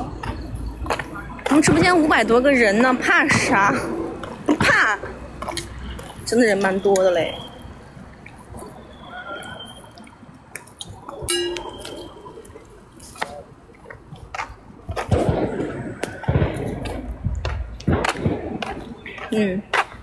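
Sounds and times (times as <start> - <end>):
voices: 0.0 - 14.3, 18.7 - 20.0.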